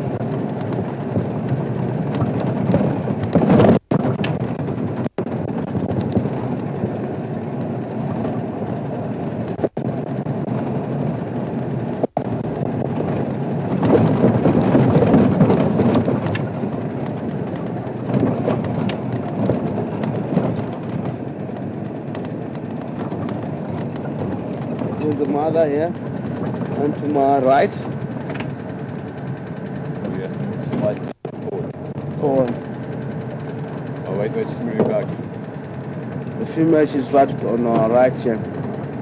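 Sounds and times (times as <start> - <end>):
vehicle driving on dirt track: 0.0 - 39.0.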